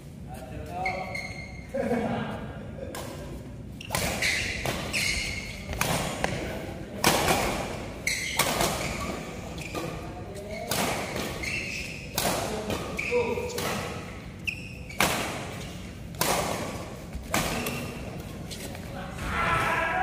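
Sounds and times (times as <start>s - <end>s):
shoes squeaking on court: 0.4s - 1.7s, 3.7s - 6.4s, 7.4s - 18.9s
racket hitting shuttlecock: 3.9s - 6.4s, 10.6s - 14.1s, 14.9s - 18.0s.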